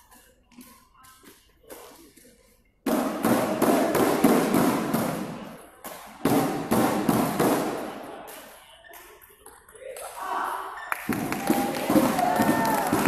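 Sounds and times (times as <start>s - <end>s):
crowd cheering and clapping: 10.9s - 13.0s.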